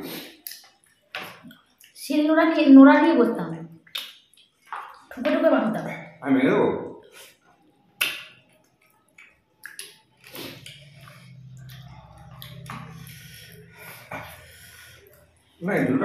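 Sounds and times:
wet mouth smacks: 0.1s - 2.0s, 3.7s - 5.1s, 8.0s - 13.2s
chewing clicks: 8.4s - 13.6s
low steady hum: 8.8s - 16.0s.

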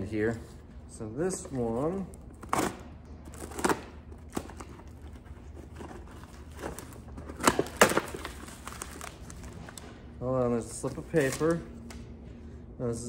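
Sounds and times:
cardboard rustling and scraping: 3.3s - 9.7s.

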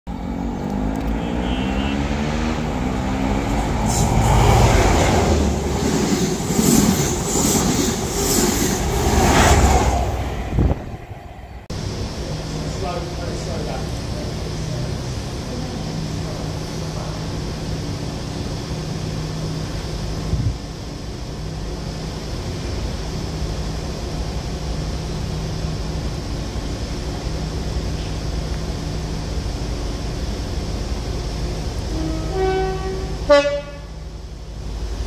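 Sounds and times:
diesel locomotive engine hum: 0.1s - 35.0s
two-tone train horn: 1.1s - 2.2s, 31.9s - 34.0s.

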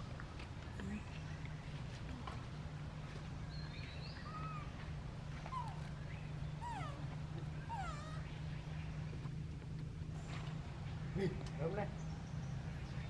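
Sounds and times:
steady low hum: 0.0s - 13.0s
baby monkey high calls: 4.1s - 4.8s.

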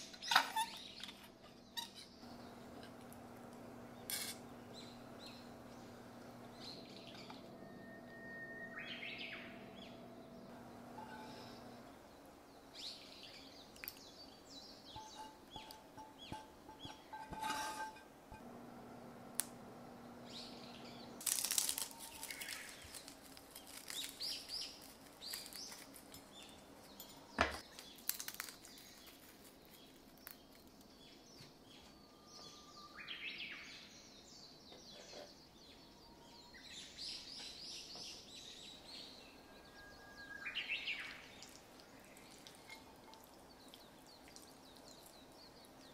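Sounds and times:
fried garlic chips crunching: 21.2s - 26.6s, 27.6s - 30.8s.

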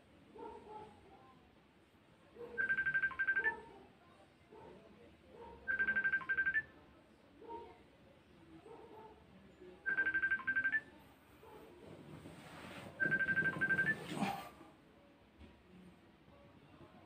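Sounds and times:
phone ringtone trilling: 2.6s - 3.6s, 5.7s - 6.7s, 9.9s - 10.9s, 13.0s - 14.1s.

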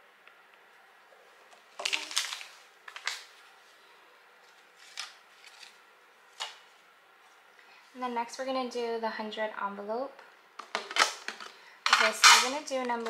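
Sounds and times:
paper bills rustling: 1.6s - 3.5s, 4.4s - 6.5s.

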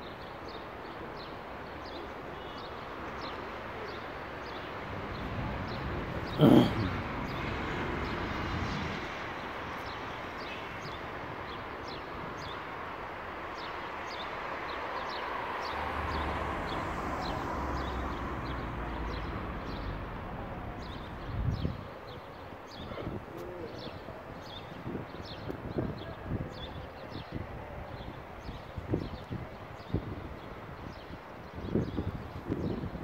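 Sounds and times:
street traffic: 0.1s - 33.0s
birds chirping: 5.7s - 8.2s.

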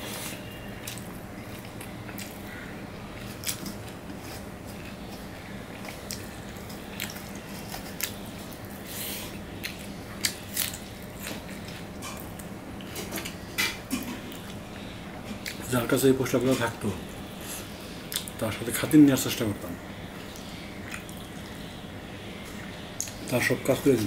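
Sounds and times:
chewing: 0.0s - 13.0s, 18.1s - 18.4s, 20.2s - 21.6s
steady low hum: 0.0s - 24.0s.

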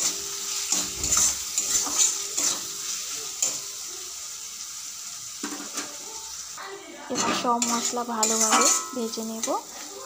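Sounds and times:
metal spatula scraping a pan: 0.0s - 3.7s, 7.1s - 10.0s
oil sizzling: 0.0s - 10.0s.

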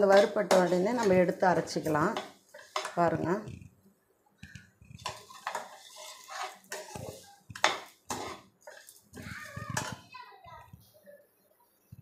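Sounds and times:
metal skimmer scraping a pan: 0.0s - 3.1s, 4.9s - 10.0s.

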